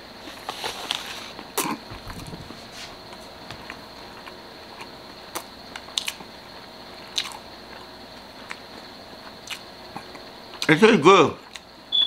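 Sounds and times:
quiet chewing: 2.9s - 6.3s, 7.0s - 10.7s.

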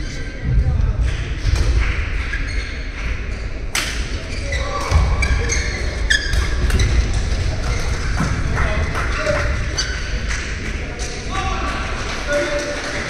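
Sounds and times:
sports hall rumble: 0.0s - 13.0s
shoe squeaks on court: 4.2s - 8.0s.

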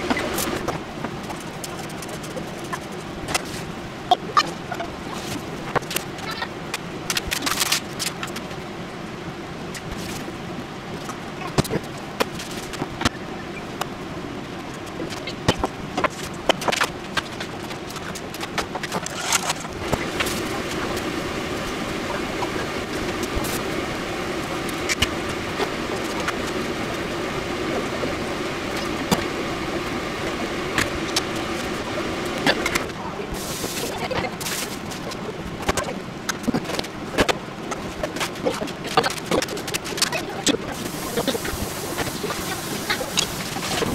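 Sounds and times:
gas burner hissing: 19.8s - 35.0s, 40.7s - 43.9s.

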